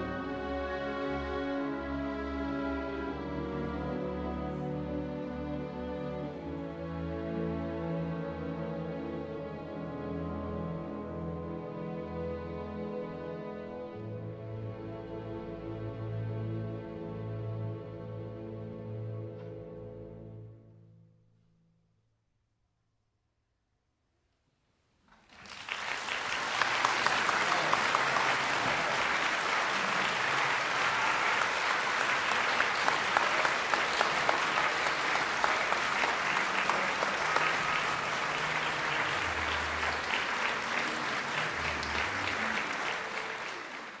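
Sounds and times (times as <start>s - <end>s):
audience applause: 25.2s - 44.0s.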